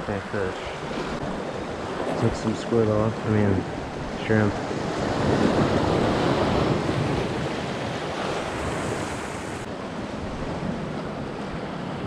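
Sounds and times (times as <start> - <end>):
waves breaking on rocks: 0.1 - 9.7.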